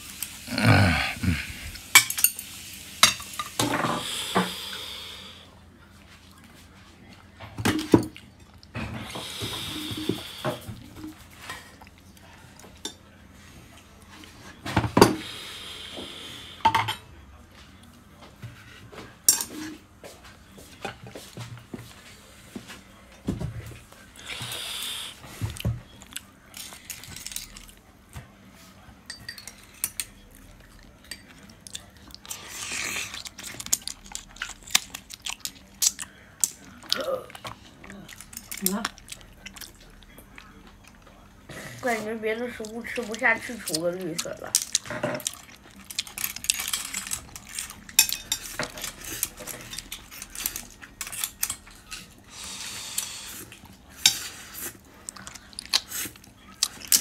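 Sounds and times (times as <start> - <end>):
dishes and cutlery clinking: 1.9 - 4.5, 16.6 - 17.1, 18.5 - 22.0, 29.0 - 30.2, 44.5 - 52.2, 53.6 - 55.8.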